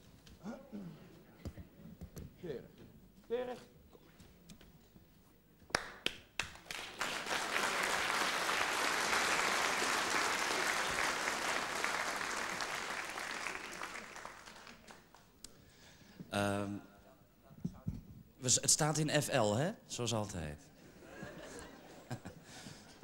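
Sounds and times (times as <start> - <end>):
audience applauding: 5.8 - 15.3.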